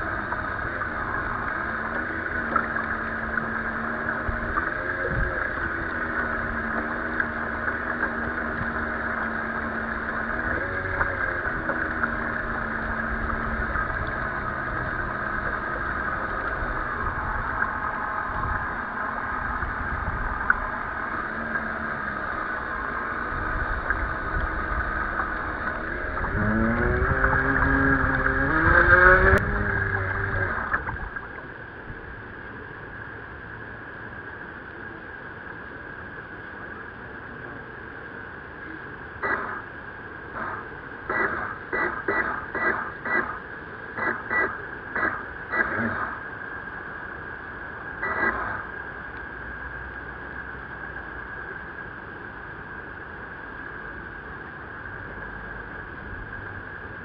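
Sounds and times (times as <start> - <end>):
small motor humming: 0.0 - 31.4
choppy water: 0.0 - 57.0
wind: 0.0 - 57.0.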